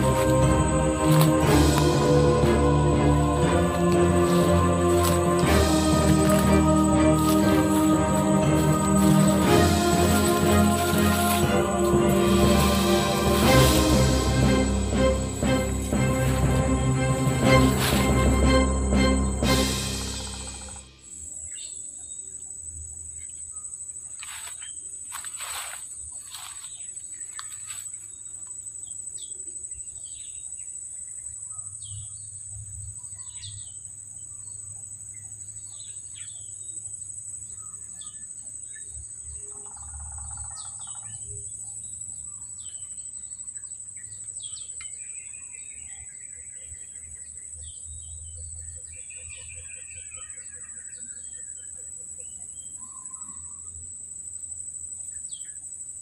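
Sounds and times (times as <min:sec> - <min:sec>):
insects droning: 0:00.0 - 0:56.0
trilling bird calls: 0:37.5 - 0:41.5, 0:42.2 - 0:53.8.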